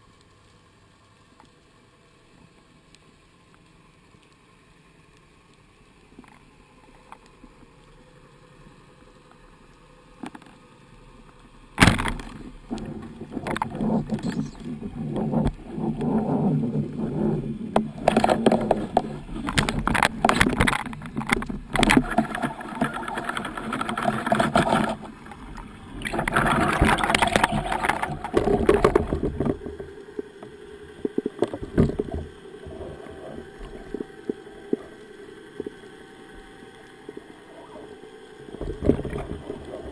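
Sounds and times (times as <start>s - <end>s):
underwater rushing water: 0.0s - 39.9s
knocks underwater: 31.1s - 33.1s.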